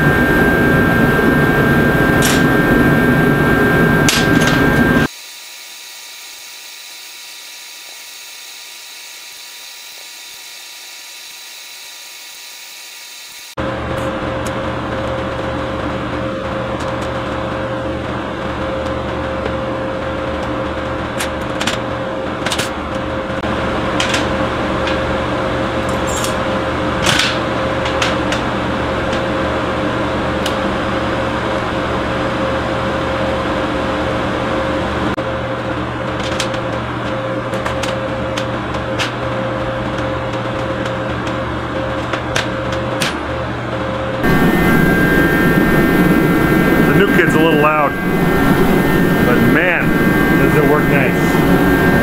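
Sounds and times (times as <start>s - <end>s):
machine hum: 0.0s - 52.0s.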